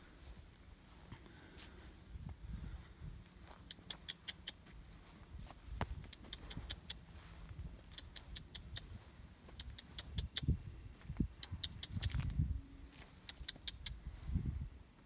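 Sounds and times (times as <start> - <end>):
footsteps on grass and concrete: 0.0 - 15.0.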